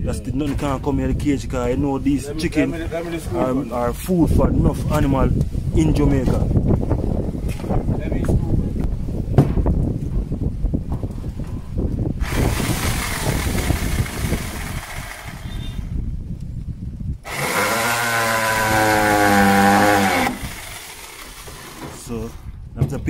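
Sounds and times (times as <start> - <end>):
cordless drill driving screws: 12.2 - 15.9, 17.3 - 22.4.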